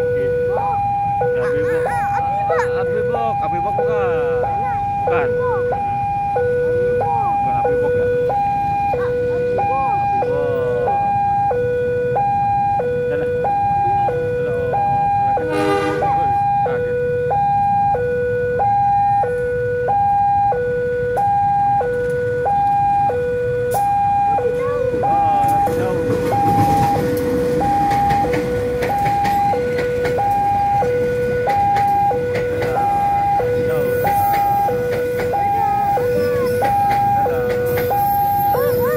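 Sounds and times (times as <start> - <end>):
passenger train rumbling: 0.0 - 17.9, 18.7 - 38.9
level crossing two-tone alarm: 0.0 - 38.9
train wheels clicking on rails: 25.0 - 38.9.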